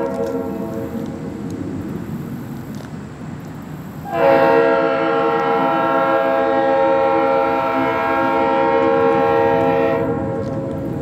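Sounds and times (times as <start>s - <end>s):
locomotive air horn chord: 0.0s - 1.0s, 4.0s - 10.5s.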